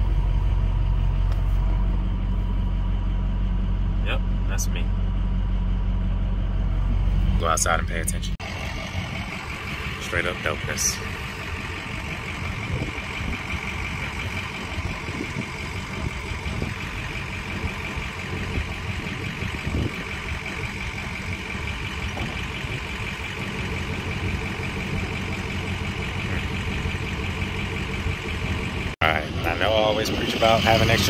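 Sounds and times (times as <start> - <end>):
diesel engine running: 0.0 - 31.0.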